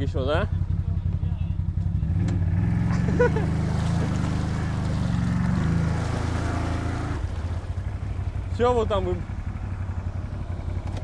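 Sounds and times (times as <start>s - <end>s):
quad engine running: 0.0s - 11.0s
water splashing and sloshing: 2.8s - 8.5s.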